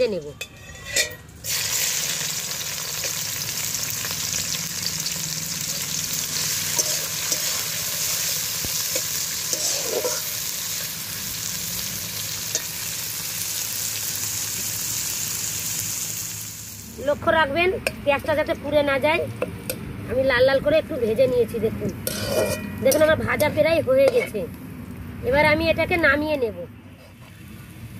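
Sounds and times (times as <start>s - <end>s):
steel spatula scraping wok: 0.0s - 2.1s, 5.8s - 13.2s, 22.0s - 24.4s
onions sizzling in oil: 0.9s - 17.3s.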